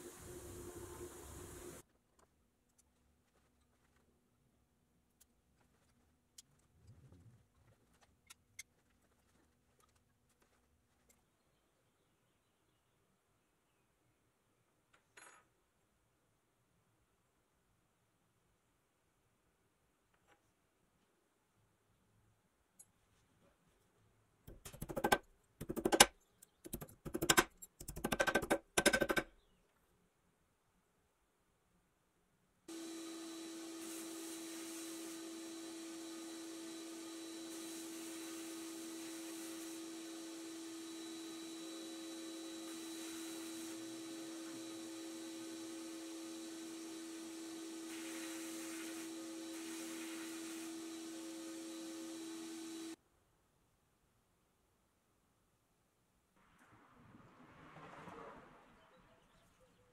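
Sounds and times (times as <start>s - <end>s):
hammer tapping metal: 26.7s - 29.3s
hiss of air and grit: 32.8s - 35.8s, 36.9s - 40.5s, 45.4s - 53.0s.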